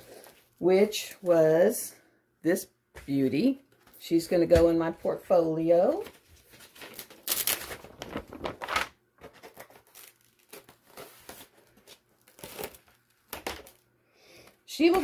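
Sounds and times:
paper rustling and crinkling: 5.8 - 13.8.

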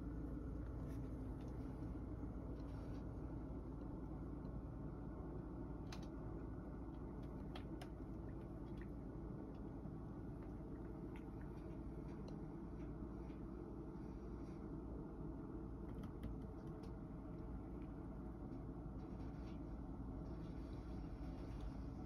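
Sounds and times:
fan heater humming: 0.0 - 22.0.

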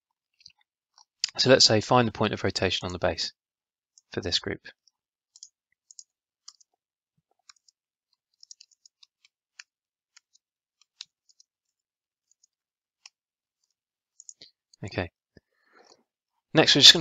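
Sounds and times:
computer keyboard typing: 5.3 - 6.7, 7.4 - 14.4.

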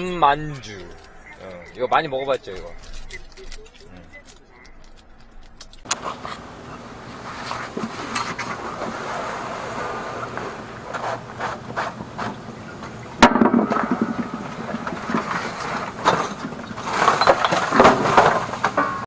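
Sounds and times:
clothing rubbing on microphone: 6.0 - 12.3.

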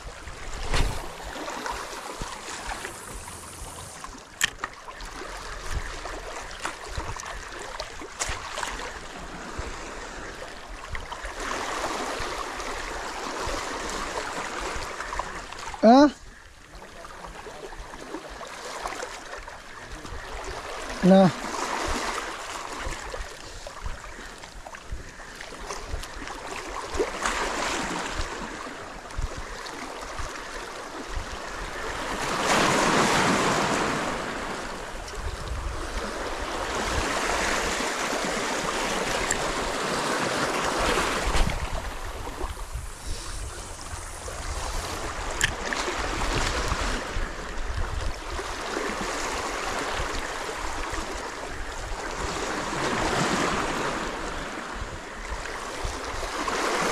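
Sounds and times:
waves washing over rocks: 0.0 - 16.1, 16.9 - 56.9
wind rumble on microphone: 5.2 - 11.0, 22.8 - 56.9.

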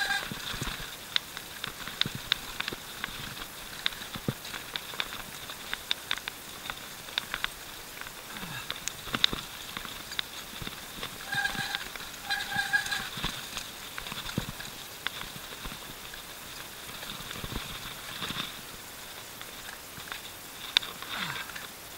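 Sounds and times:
tyres rolling: 0.0 - 21.7
bike clicks and knocks over stones: 0.0 - 21.9.

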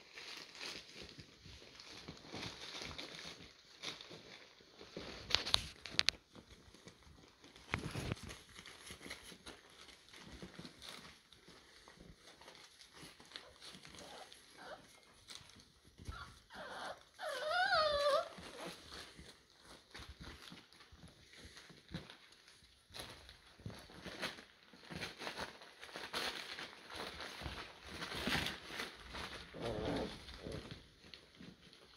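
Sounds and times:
puppies scrabbling on newspaper: 0.0 - 31.9
puppy whining: 8.9 - 21.5, 27.4 - 31.9.

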